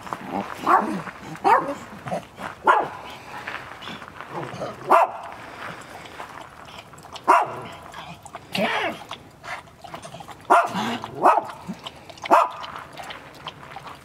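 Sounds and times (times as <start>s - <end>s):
dogs barking: 0.4s - 3.1s, 4.8s - 5.4s, 7.2s - 7.9s, 10.2s - 13.1s.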